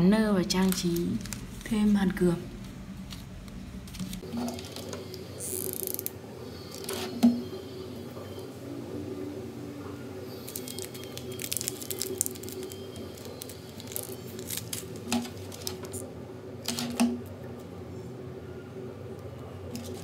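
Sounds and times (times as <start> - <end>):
plastic bag crinkling: 0.5 - 6.0, 10.3 - 17.0.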